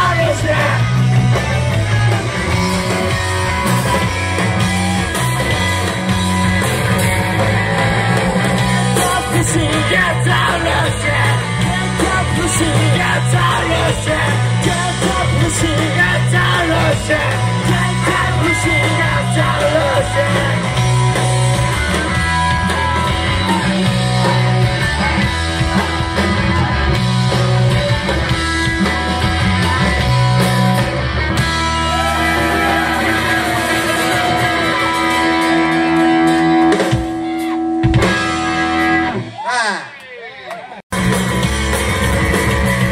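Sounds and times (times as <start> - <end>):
person singing and shouting: 0.0 - 1.0, 6.8 - 21.2, 39.2 - 40.5
electric guitars: 0.0 - 39.4, 40.9 - 42.9
drums: 0.0 - 42.9.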